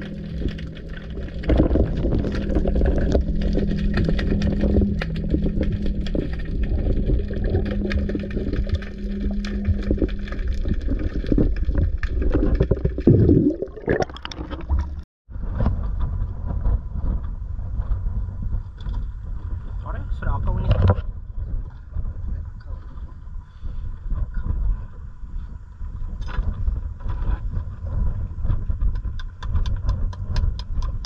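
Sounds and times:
steady low hum: 0:00.0 - 0:12.0
wind: 0:00.0 - 0:12.6, 0:15.3 - 0:31.0
underwater crackling and clicking: 0:00.0 - 0:15.1, 0:26.1 - 0:31.0
rush of water and bubbles: 0:00.0 - 0:15.7.

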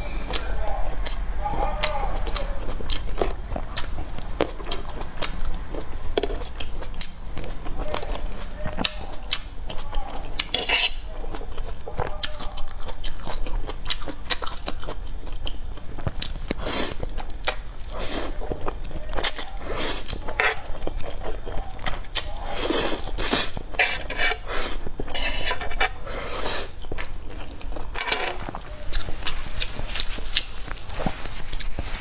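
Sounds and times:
tomato bitten and chewed: 0:00.3 - 0:32.0
noodles slurped: 0:21.9 - 0:26.8.

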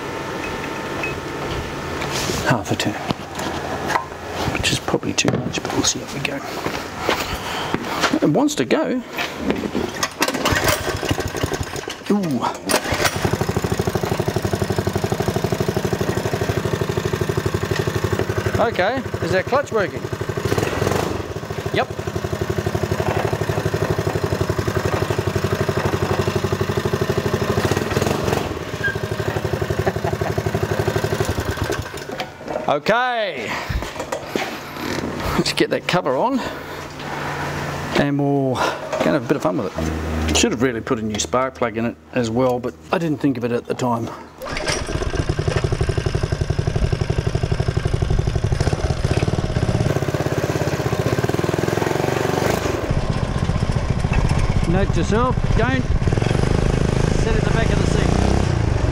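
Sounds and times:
small petrol engine putter: 0:09.4 - 0:32.6, 0:44.4 - 0:58.9.

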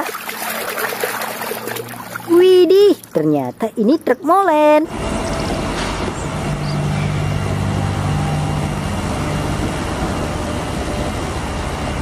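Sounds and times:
diesel truck engine running: 0:04.8 - 0:12.0.

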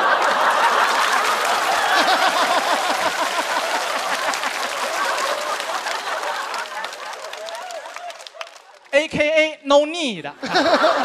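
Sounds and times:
crowd laughing: 0:00.0 - 0:08.9, 0:10.3 - 0:11.0
audience clapping: 0:00.0 - 0:09.1.

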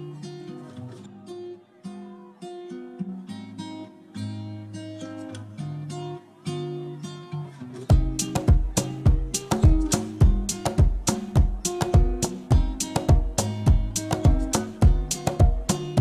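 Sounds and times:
plucked acoustic guitar melody: 0:00.0 - 0:16.0.

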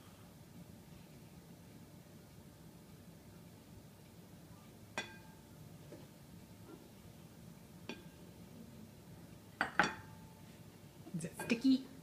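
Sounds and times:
glass cup clinking on glass bowl: 0:05.0 - 0:05.4, 0:09.6 - 0:10.2.

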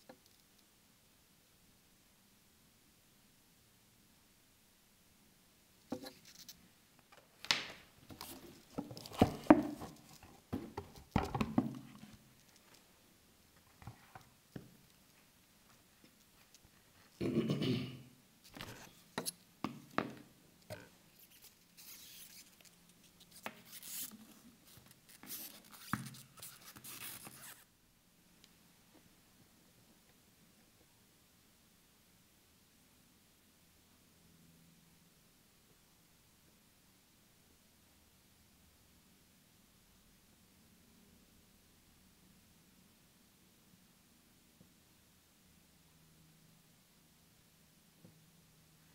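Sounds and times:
watch strap rustling: 0:21.3 - 0:27.6.

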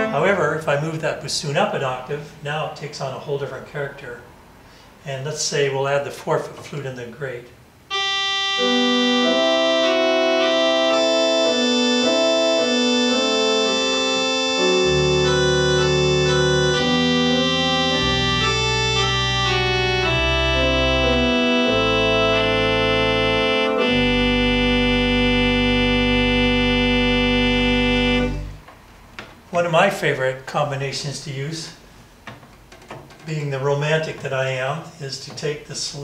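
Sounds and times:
church organ playing chords: 0:00.0 - 0:00.7, 0:07.9 - 0:28.7.

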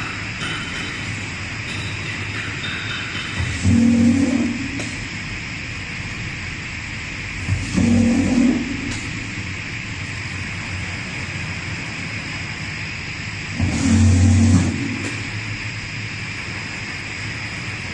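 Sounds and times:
low hum: 0:00.0 - 0:12.3
machine mechanical hiss: 0:00.0 - 0:17.9.

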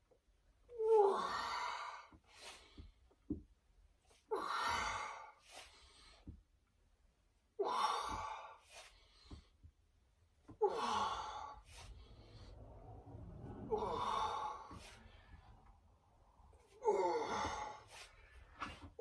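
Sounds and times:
man breathing hard: 0:07.6 - 0:09.8, 0:10.5 - 0:19.0.

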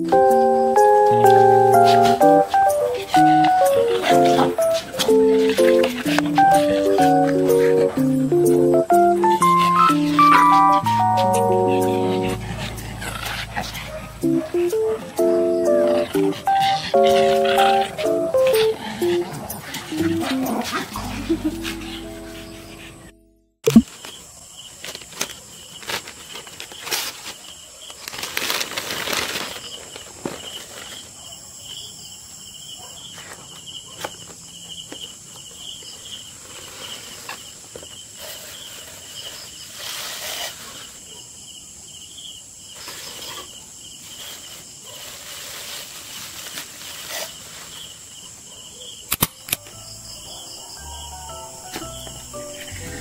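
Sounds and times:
crickets chirping: 0:00.0 - 0:23.2, 0:23.8 - 0:53.0
tissue paper rustling: 0:25.8 - 0:31.1, 0:44.1 - 0:48.0.

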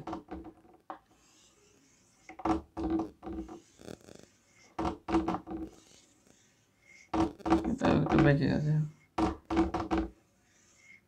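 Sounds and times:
chalk scraping on blackboard: 0:01.2 - 0:02.6, 0:03.2 - 0:04.8, 0:05.5 - 0:07.2, 0:10.1 - 0:11.0.

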